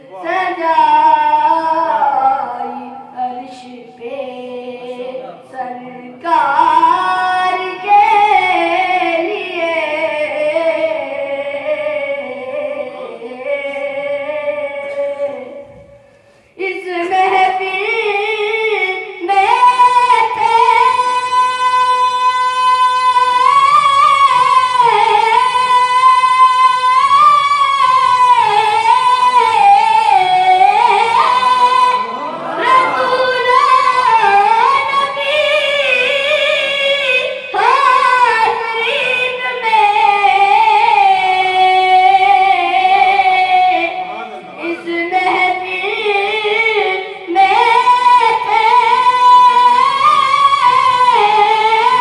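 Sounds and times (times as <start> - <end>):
boy singing devotional song: 0.0 - 52.0.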